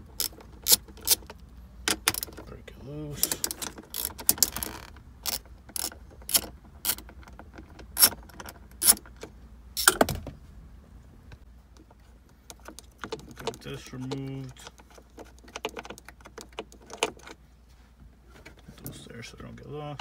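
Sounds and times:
socket wrench clicking: 3.2s - 7.3s.

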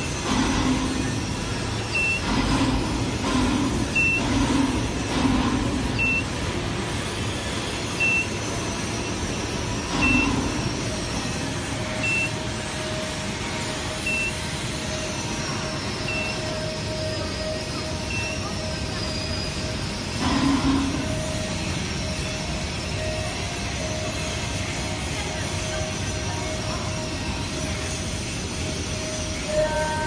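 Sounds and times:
machinery noise: 0.0s - 30.0s
steady mid-pitched tone: 0.0s - 30.0s
short high electronic beep: 1.9s - 2.8s, 5.8s - 6.4s, 7.9s - 10.8s, 11.8s - 12.4s, 14.0s - 14.5s, 15.8s - 19.6s.

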